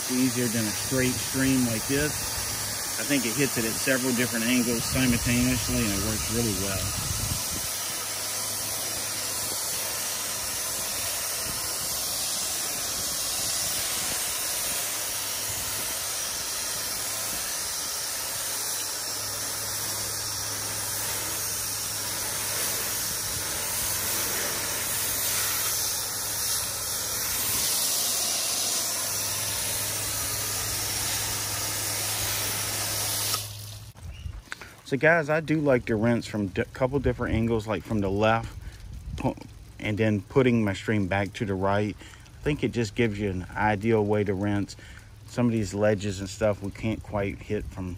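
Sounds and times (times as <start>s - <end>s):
pressure washer spraying water: 0.0s - 34.0s
steady low hum: 0.0s - 34.0s.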